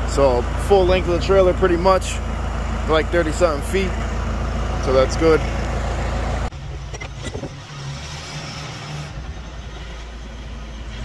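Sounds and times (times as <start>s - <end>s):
engine running at low speed: 0.0s - 11.0s.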